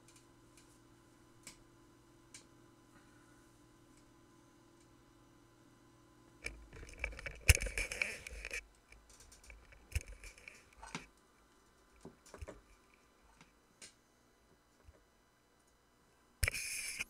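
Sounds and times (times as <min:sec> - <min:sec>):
handling rubbing and scraping: 0:06.7 - 0:08.6
clicks and taps: 0:11.9 - 0:14.0.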